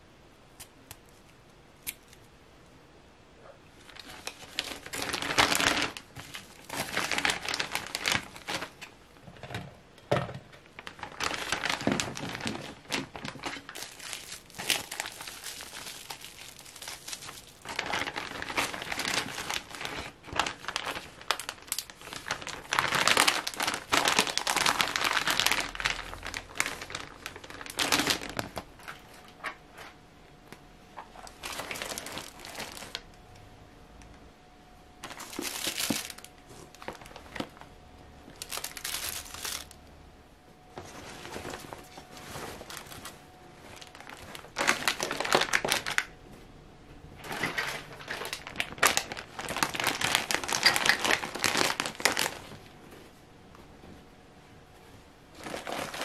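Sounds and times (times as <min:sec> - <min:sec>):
plastic bag crinkling: 0:03.7 - 0:09.0, 0:10.6 - 0:29.6, 0:31.0 - 0:33.3, 0:35.0 - 0:39.9, 0:40.8 - 0:46.2, 0:47.2 - 0:52.8, 0:55.3 - 0:56.0.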